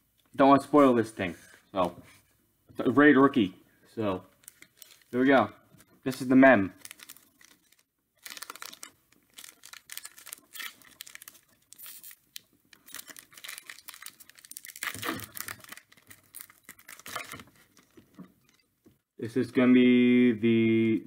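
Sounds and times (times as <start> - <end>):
foil wrapper tearing: 4.4 - 5.2, 6.1 - 18.0.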